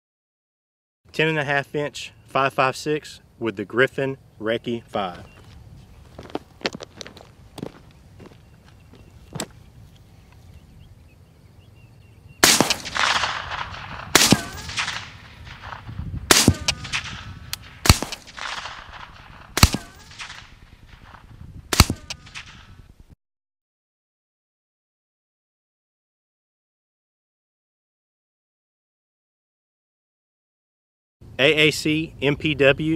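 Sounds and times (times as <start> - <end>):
suppressed rifle shots: 12.4 - 22.7
rolling echo: 12.4 - 22.9.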